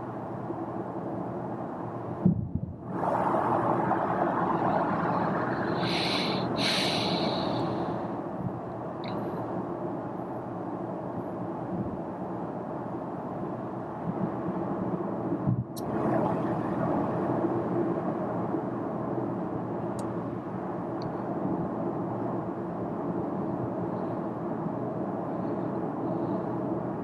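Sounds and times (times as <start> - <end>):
road and wind noise in car: 0.0 - 27.0
short hissing sounds: 5.7 - 7.8.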